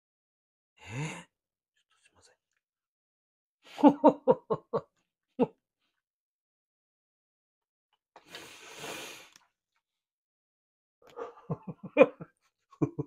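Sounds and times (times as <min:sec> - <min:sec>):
man breathing noisily: 0:08.3 - 0:09.4.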